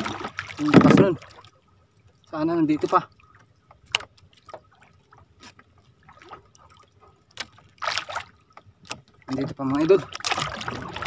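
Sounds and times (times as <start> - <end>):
small splashes: 0.0 - 11.0
splashing rush of water: 9.8 - 11.0.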